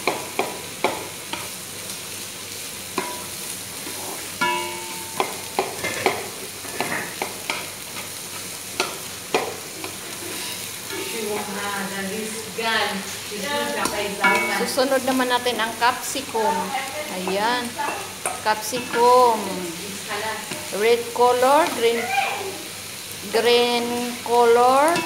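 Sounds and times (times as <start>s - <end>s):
vegetables sizzling in oil: 0.0s - 25.0s
spatula scraping and knocking pan: 3.0s - 11.7s, 13.5s - 15.6s, 17.2s - 19.4s, 20.1s - 22.0s.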